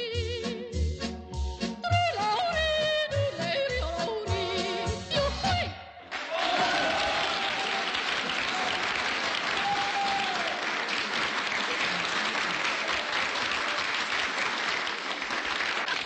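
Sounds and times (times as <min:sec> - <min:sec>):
large audience applauding: 0:06.1 - 0:16.0.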